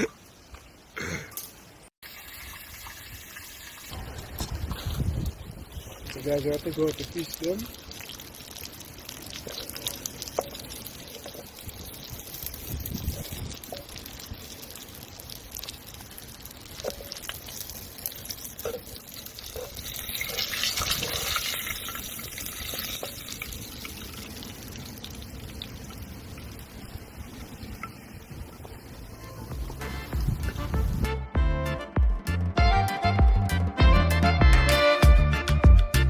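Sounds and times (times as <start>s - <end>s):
water pouring and trickling: 1.3s - 31.0s
small clicks and splashes: 3.7s - 28.8s.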